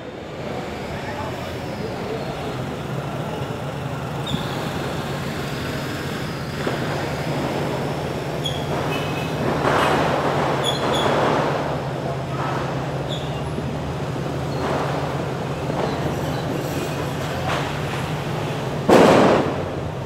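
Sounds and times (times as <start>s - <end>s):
vehicle noise: 0.0s - 20.0s.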